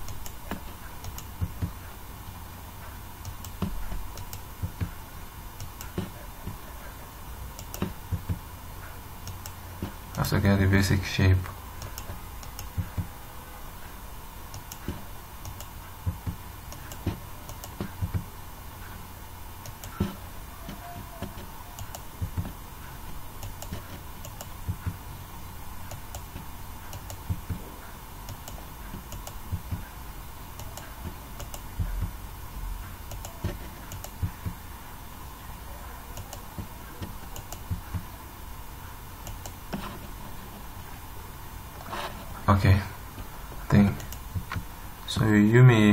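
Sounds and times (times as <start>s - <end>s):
faint electrical hum: 0.0s - 45.9s
mouse and keyboard clicks: 14.5s - 18.2s, 19.6s - 22.6s, 33.1s - 34.6s, 36.1s - 38.1s.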